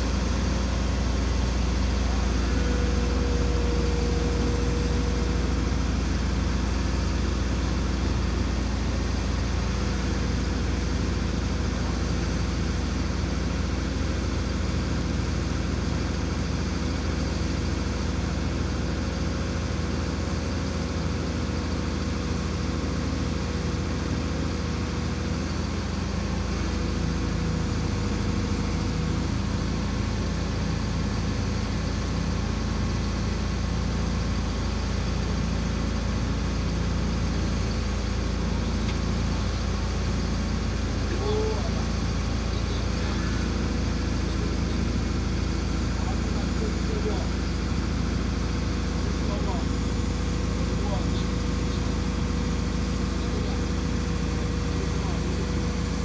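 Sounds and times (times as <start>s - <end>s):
heavy machine engine idling: 0.0s - 56.0s.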